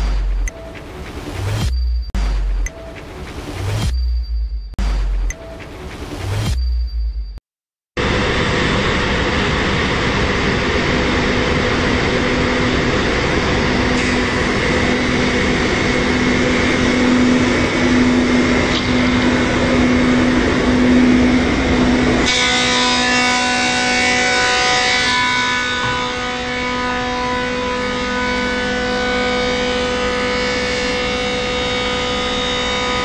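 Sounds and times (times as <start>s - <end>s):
wood moulder machine running: 8.0s - 33.0s.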